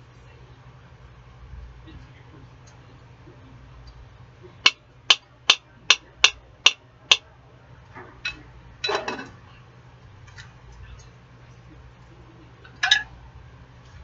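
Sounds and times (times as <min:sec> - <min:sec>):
utensil tapping on cookware: 0:04.6 - 0:07.3
dishes clattering: 0:08.0 - 0:09.4, 0:12.6 - 0:13.1.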